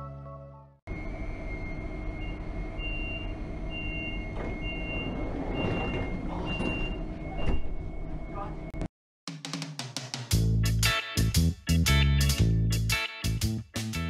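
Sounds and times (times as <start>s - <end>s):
train door warning beeps: 1.4s - 8.7s
sliding doors shutting: 3.7s - 8.0s.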